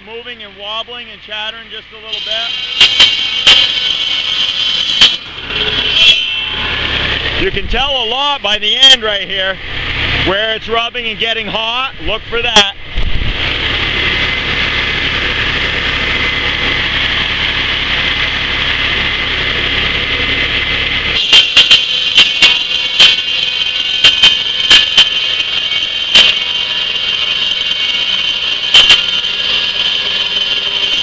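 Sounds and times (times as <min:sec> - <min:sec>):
tractor engine running: 0:00.0 - 0:31.0
circular saw blade whining: 0:13.4 - 0:31.0.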